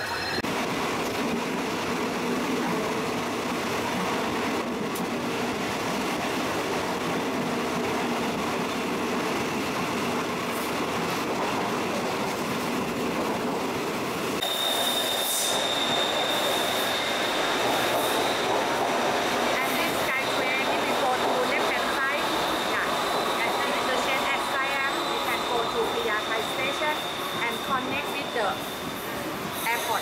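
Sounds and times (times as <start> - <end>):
high-pitched train whine: 0.0 - 1.2, 14.2 - 30.0
metro train passing platform: 0.0 - 30.0
train running noise inside carriage: 0.0 - 30.0.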